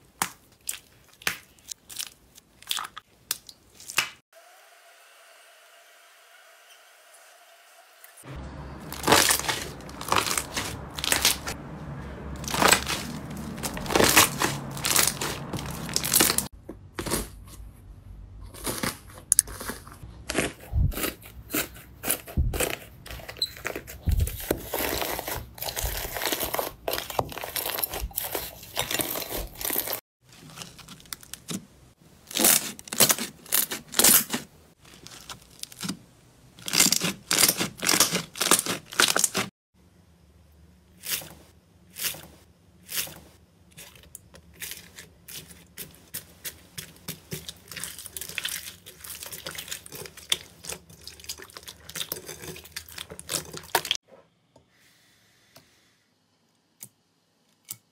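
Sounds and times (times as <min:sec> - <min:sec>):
hands squishing sticky slime: 0:12.4 - 0:17.3, 0:44.6 - 0:54.0.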